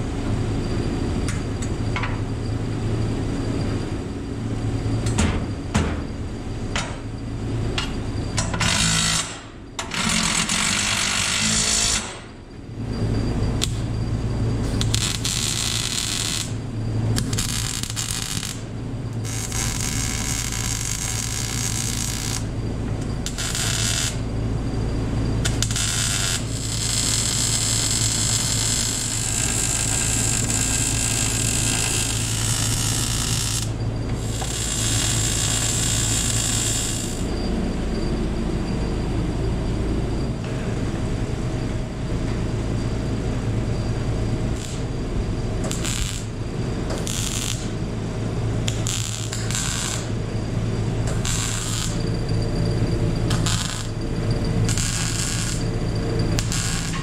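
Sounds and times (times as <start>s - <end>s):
steady low hum: 0.0s - 57.0s
welding arc crackling: 14.7s - 24.3s, 25.4s - 37.3s, 44.4s - 50.2s, 50.8s - 57.0s.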